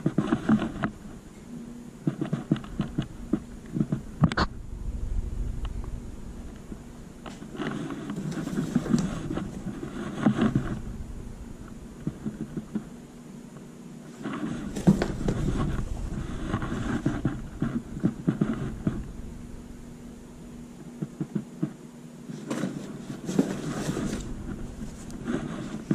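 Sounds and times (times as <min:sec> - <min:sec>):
fabric rustling: 0:06.5 - 0:12.9, 0:14.1 - 0:20.6, 0:22.4 - 0:25.9.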